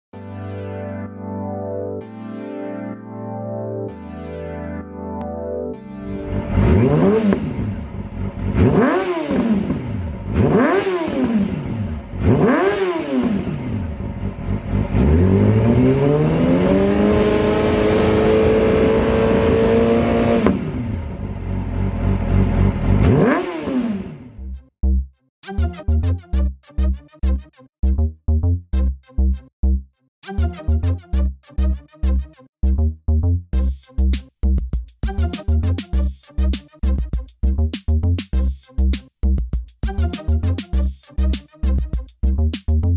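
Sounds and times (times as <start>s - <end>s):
motorcycle engine revving: 6.3s - 24.4s.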